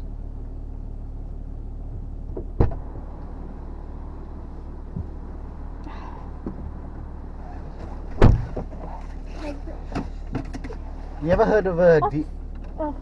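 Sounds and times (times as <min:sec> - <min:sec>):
car engine idling: 0:00.0 - 0:13.0
passenger rustles and bumps: 0:00.0 - 0:13.0.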